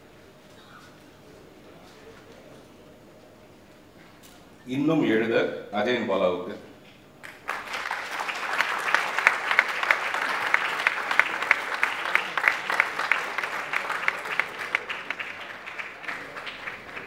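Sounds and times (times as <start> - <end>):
audience applauding: 7.2 - 17.0.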